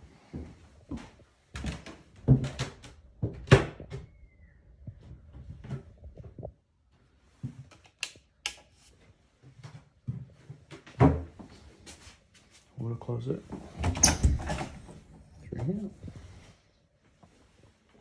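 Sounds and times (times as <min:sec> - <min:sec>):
door squeak: 0:13.9 - 0:14.8.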